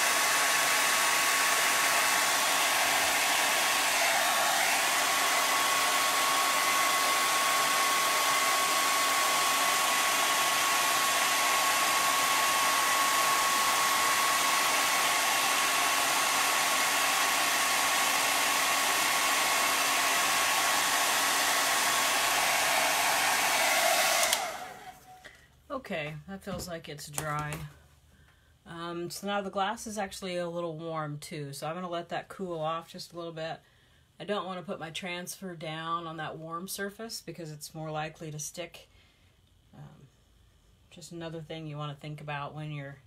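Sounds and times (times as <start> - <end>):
blow dryer running: 0.0 - 25.4.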